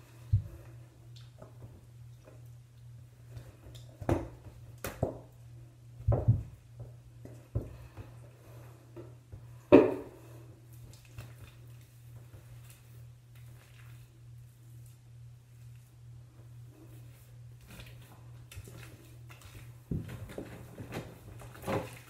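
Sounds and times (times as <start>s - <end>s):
thumps in a bathtub: 6.0s - 6.6s.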